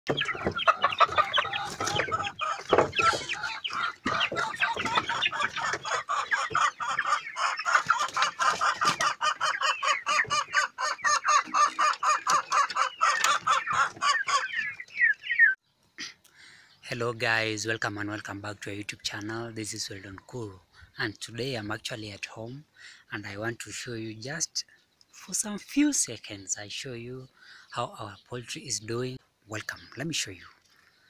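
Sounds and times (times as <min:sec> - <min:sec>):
chickens clucking and chirping: 0:00.1 - 0:31.0.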